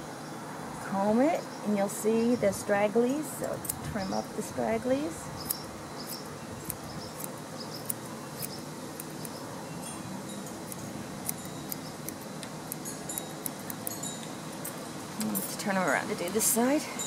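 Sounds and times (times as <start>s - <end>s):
scissors snipping hair: 5.4s - 9.4s, 10.5s - 14.0s, 14.6s - 16.8s.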